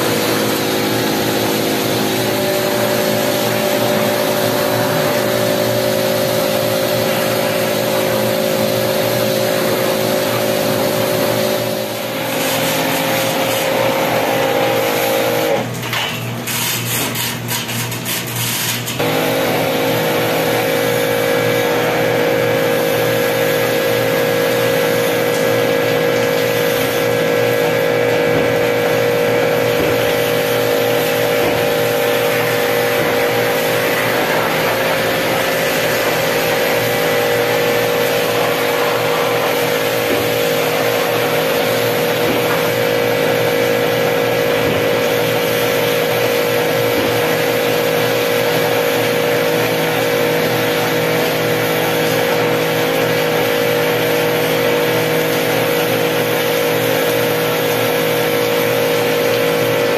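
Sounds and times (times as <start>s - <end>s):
machine drone with hum: 19.0s - 59.9s.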